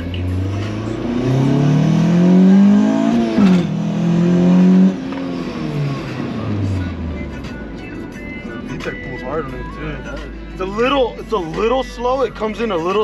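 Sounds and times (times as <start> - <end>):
car engine at full throttle: 0.0 - 11.7.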